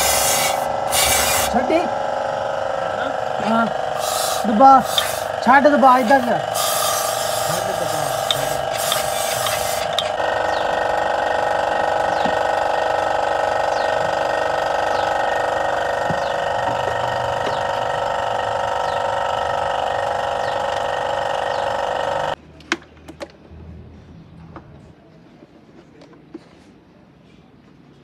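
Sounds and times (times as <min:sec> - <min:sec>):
aerosol spray hissing: 0:00.0 - 0:01.6, 0:04.0 - 0:10.1
loud mechanical whine: 0:00.0 - 0:22.4.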